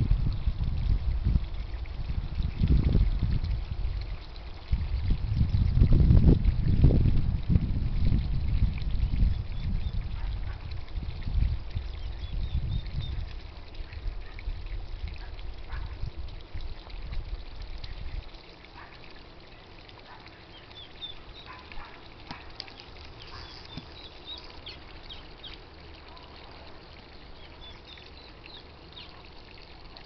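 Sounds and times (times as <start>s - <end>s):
water trickling: 0.0s - 30.0s
birds chirping: 19.5s - 26.3s, 27.1s - 29.4s.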